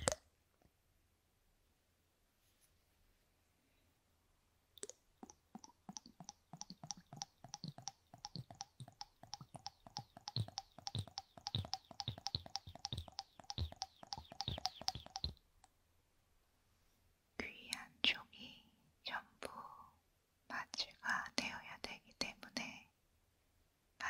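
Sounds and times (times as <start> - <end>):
liquid squirting wet pops and clicks: 4.8 - 15.4.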